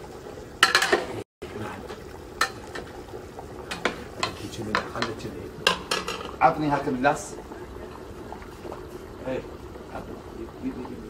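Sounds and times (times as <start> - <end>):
low hiss of cooking: 0.0 - 11.0
metal pots and utensils clinking: 0.6 - 1.2, 1.9 - 3.0, 3.7 - 7.0.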